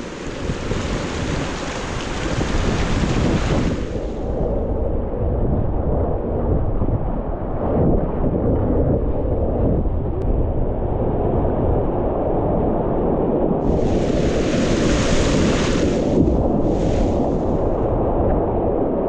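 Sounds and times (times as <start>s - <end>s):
river rapids rumbling: 0.0s - 4.2s, 13.7s - 17.8s
water splashing: 0.0s - 4.3s, 13.7s - 17.8s.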